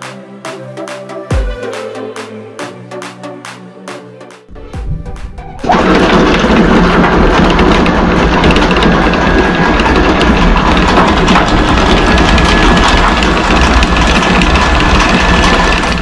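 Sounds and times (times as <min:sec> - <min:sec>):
anchor windlass hauling chain: 0:05.7 - 0:16.0.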